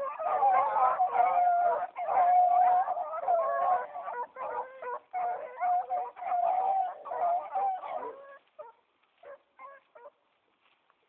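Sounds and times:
dogs yelping: 0.0s - 10.2s
hounds baying: 0.0s - 10.2s.

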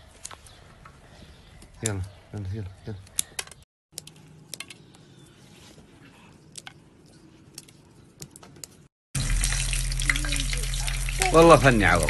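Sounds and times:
insects sizzling in hot oil: 9.2s - 12.0s.

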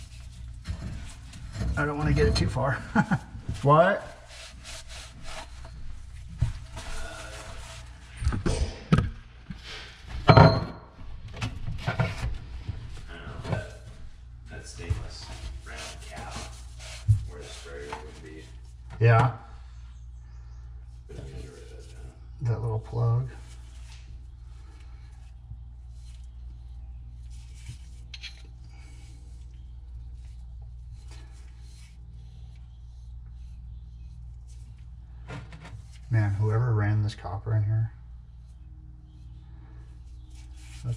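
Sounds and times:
steady low hum: 0.0s - 40.9s
hand tools and metal pipes clattering: 0.6s - 2.9s.

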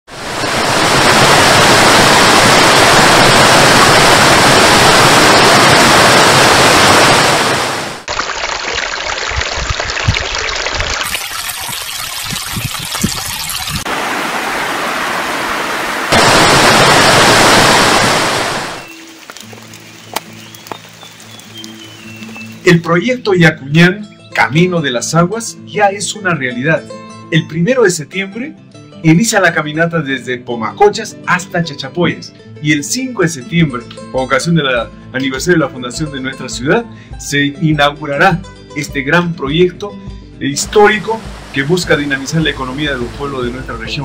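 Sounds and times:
waterfall roaring: 0.1s - 8.2s, 13.0s - 22.6s, 40.6s - 44.0s
water trickling over rocks: 8.0s - 13.9s, 18.8s - 22.9s
soft music with held notes: 19.3s - 44.0s.

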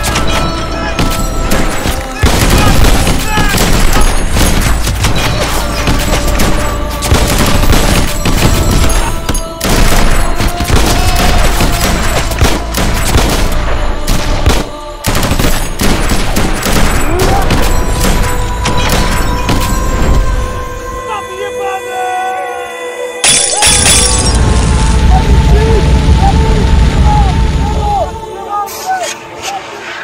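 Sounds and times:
rapid rifle and machine-gun fire: 0.0s - 20.3s.

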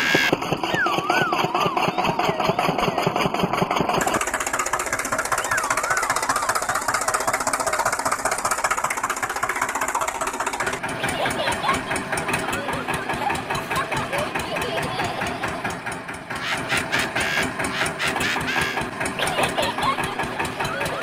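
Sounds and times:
deeper engine beat: 0.0s - 21.0s
tractor engine knocking: 0.0s - 21.0s.

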